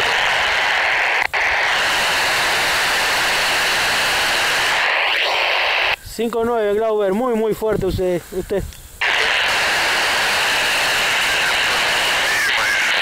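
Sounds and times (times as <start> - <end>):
radio receiver static: 0.0 - 6.0, 9.0 - 13.0.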